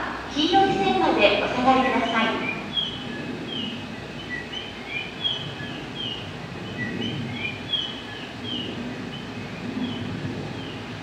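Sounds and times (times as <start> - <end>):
birds chirping high falling notes: 0.0 - 11.0
steady low hum: 0.0 - 11.0.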